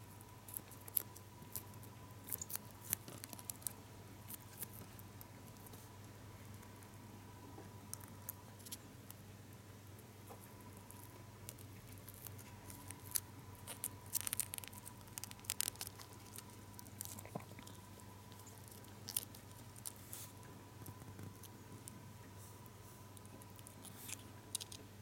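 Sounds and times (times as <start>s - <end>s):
foil wrapper crinkling: 12.0s - 20.4s.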